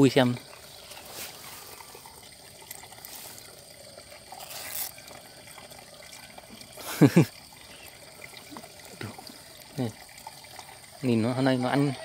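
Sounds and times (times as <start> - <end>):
water trickling and dripping: 0.0 - 12.0.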